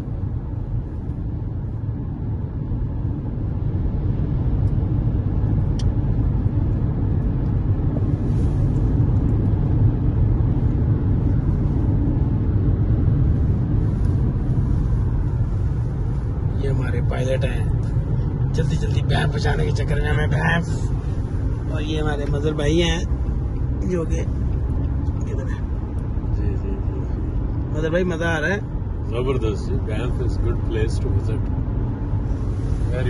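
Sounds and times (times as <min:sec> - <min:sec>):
car road noise rumble: 0:00.0 - 0:33.0.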